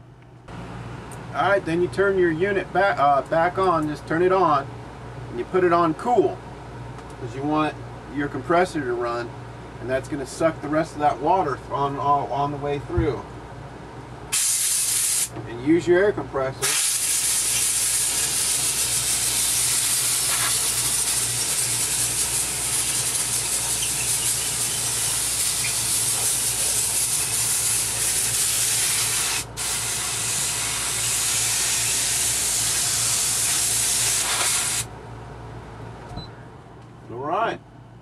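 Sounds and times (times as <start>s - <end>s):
air conditioner humming: 0.0s - 38.0s
compressed air hissing: 14.3s - 15.3s, 16.6s - 34.9s.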